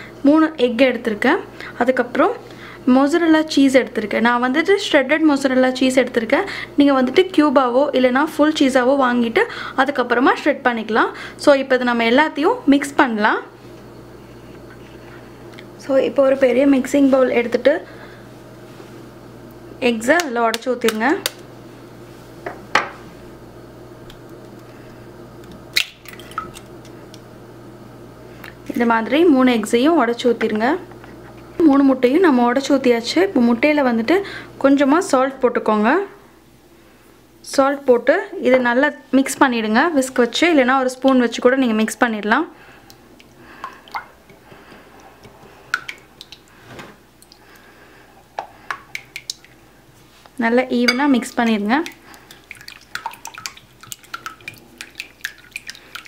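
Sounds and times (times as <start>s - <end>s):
faint steady hum: 0.0s - 56.0s
egg cracking on bowl: 25.4s - 27.2s, 48.4s - 49.6s, 50.9s - 56.0s.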